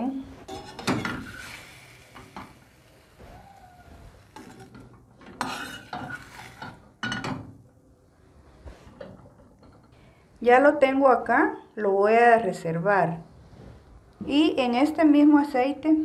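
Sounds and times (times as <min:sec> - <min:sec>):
utensil scraping frying pan: 0:00.4 - 0:07.4.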